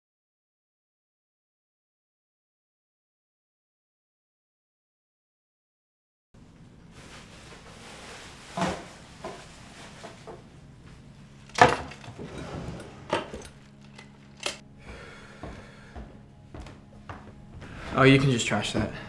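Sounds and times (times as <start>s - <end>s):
objects knocking on wooden furniture: 11.5s - 13.8s.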